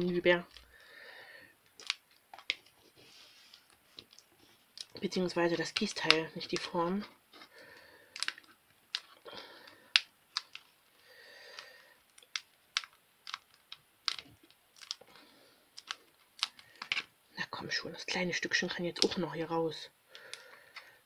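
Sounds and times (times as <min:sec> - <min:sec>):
plastic mould clicking and crackling: 0:01.6 - 0:02.8, 0:08.1 - 0:10.8, 0:11.5 - 0:17.1
faint rustling: 0:02.6 - 0:05.0.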